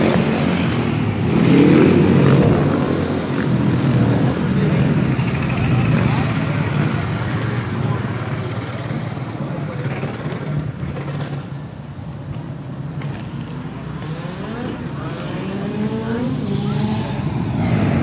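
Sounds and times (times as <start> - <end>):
motorbike engines running: 0.0 - 18.0
motorbike engine revving: 14.0 - 18.0.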